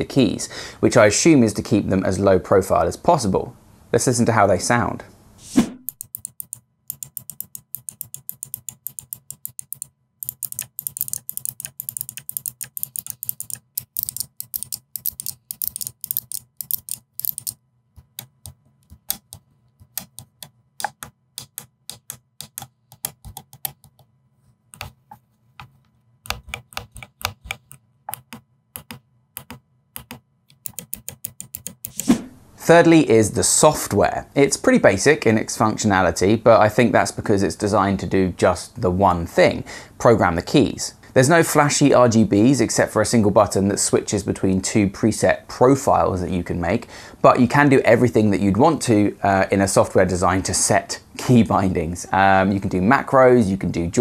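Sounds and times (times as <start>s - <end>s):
keypad keys clicking: 5.8s - 24.1s, 24.8s - 25.0s, 25.6s - 32.1s.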